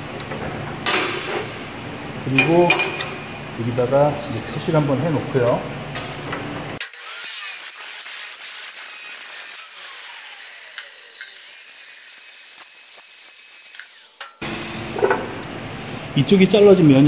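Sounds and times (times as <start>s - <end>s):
angle grinder cutting steel: 6.8s - 14.6s.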